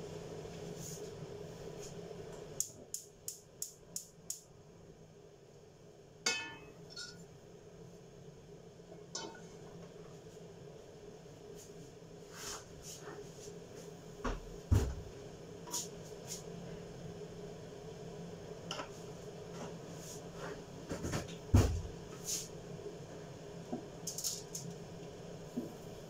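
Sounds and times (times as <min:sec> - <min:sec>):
steady low hum: 0:00.0 - 0:26.0
frying pan clinking on stove grate: 0:06.3 - 0:07.2.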